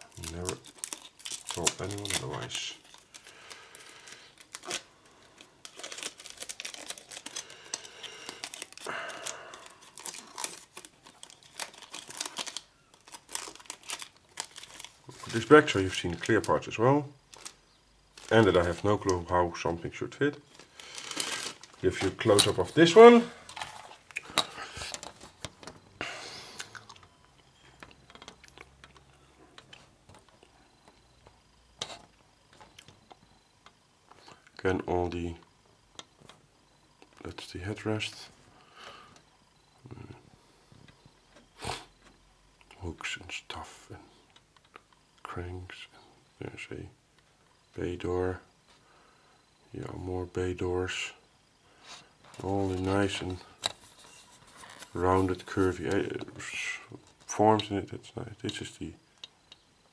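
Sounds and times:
plastic rustling: 0.0 - 25.8, 51.9 - 57.4.

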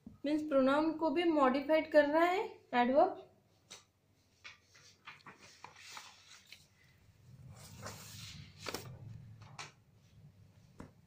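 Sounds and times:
paper rustling: 3.6 - 9.7.

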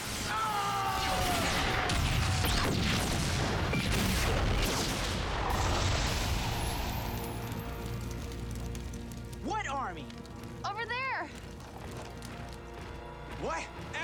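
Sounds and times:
large explosion: 0.9 - 7.6.

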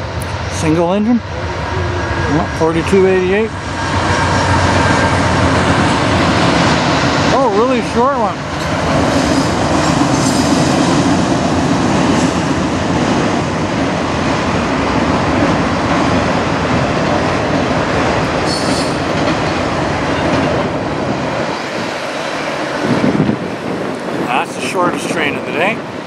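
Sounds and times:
train wheels rumbling and rattling: 0.0 - 26.0
high wheel squeal: 18.4 - 19.1.

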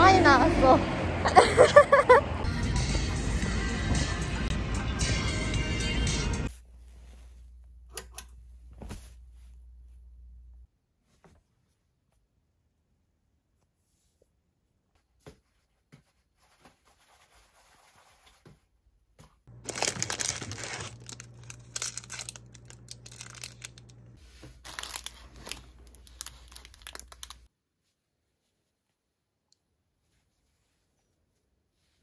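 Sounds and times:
low steady hum: 19.5 - 26.7
crinkling rustling handling noise: 19.5 - 27.5.

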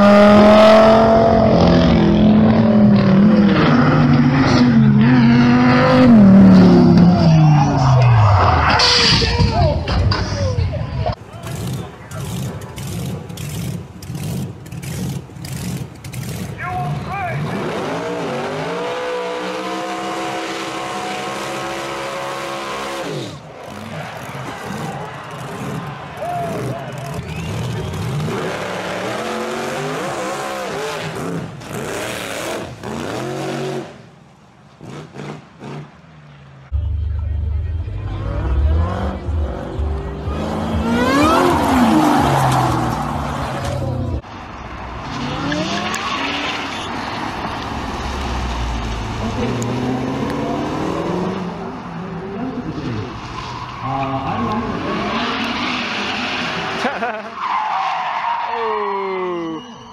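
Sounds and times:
car engine revving high: 0.0 - 8.4, 38.0 - 44.2, 47.9 - 51.7
car engine revving: 0.0 - 9.1, 11.3 - 34.0, 36.7 - 56.9
tyres squealing and skidding: 3.4 - 31.9, 38.3 - 44.2, 45.0 - 51.1, 52.0 - 59.9.

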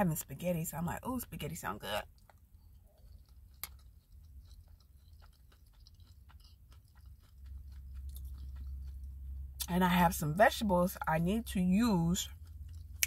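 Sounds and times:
close-mouthed chewing: 0.1 - 13.0.

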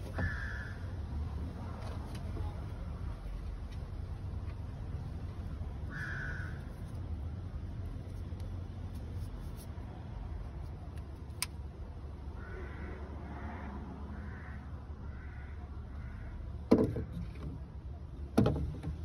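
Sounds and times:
bird cawing faintly: 0.0 - 1.0, 5.8 - 6.9, 12.2 - 16.6.

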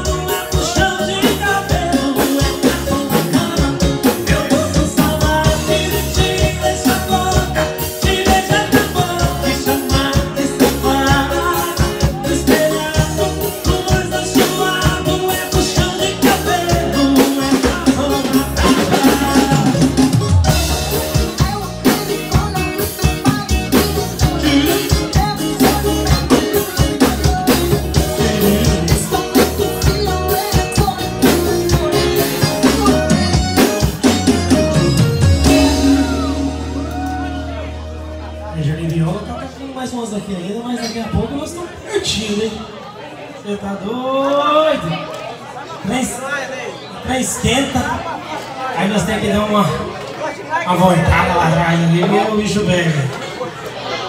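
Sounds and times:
drum kit steady beat: 0.0 - 38.5
amplified acoustic guitar: 0.0 - 40.2.

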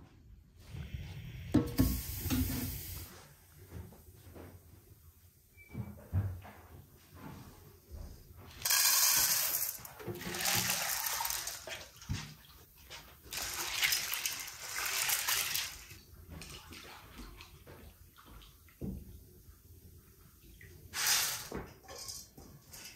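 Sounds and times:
water pouring onto dried corn: 8.6 - 12.2, 13.3 - 16.5.

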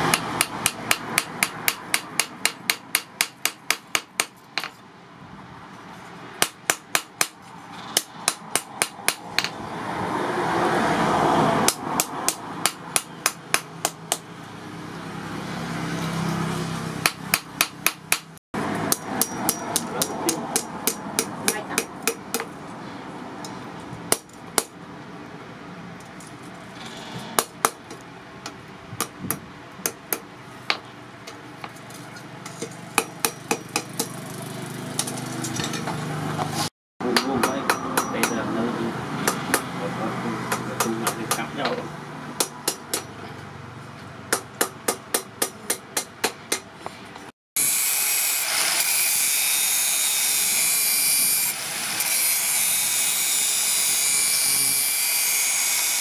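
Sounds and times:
hammer striking steel on anvil: 18.9 - 22.5, 37.0 - 38.6, 42.4 - 43.2.

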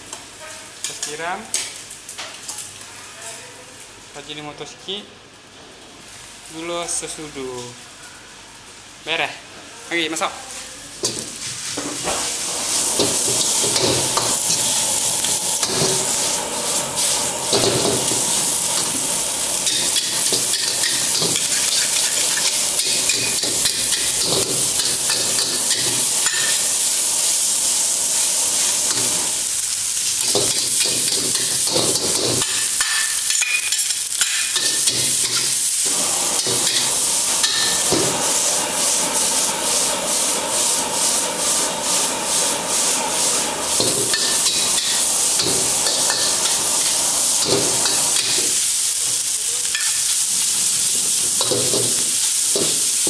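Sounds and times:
rice sizzling in a wok: 0.0 - 4.4, 5.3 - 53.0
metal spatula scraping a wok: 12.7 - 26.6, 36.4 - 37.9, 41.0 - 48.6.

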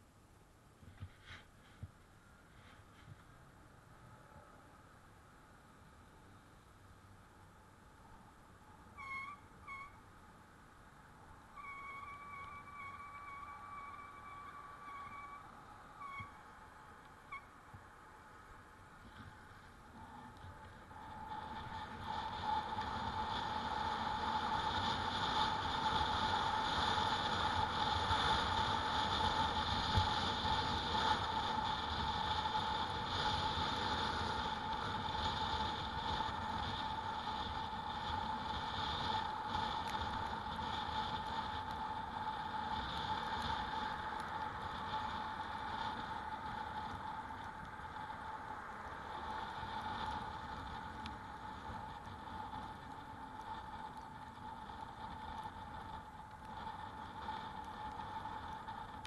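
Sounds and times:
road noise: 0.0 - 59.0
rushing wind: 7.0 - 59.0
electric bike motor whine: 11.0 - 17.8, 18.7 - 59.0.

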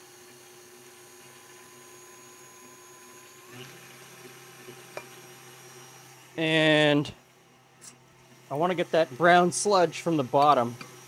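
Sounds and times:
stand mixer whipping batter: 0.0 - 7.4, 8.2 - 11.0.

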